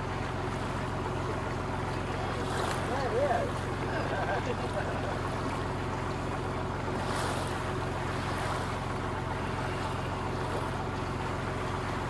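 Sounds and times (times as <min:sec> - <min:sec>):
boat engine throbbing: 0:00.0 - 0:12.0
water rushing along hull: 0:00.0 - 0:12.0.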